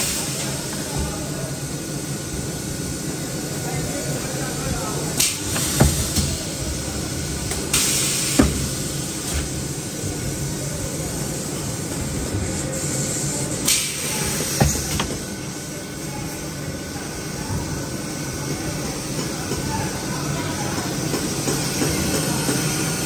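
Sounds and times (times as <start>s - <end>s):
mechanical factory din: 4.3s - 10.5s, 11.1s - 15.9s.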